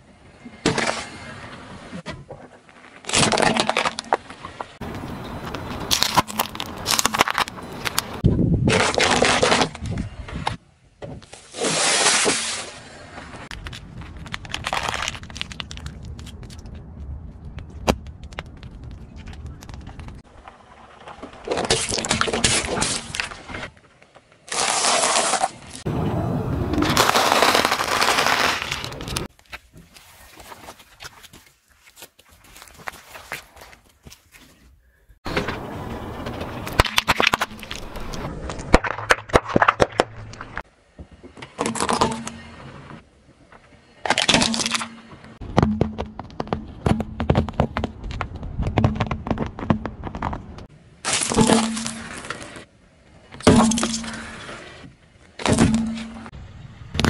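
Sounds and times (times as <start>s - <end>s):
car tyre crunching seeds: 4.8s - 9.8s, 13.4s - 23.4s, 26.7s - 34.6s, 35.3s - 40.6s
tyre crushing objects: 4.8s - 9.9s, 26.8s - 34.5s, 45.4s - 52.6s
crunch of snack straws: 13.5s - 16.8s
small clicks and crackles: 13.5s - 20.2s
loud plastic crack: 26.8s - 29.3s, 36.4s - 40.6s.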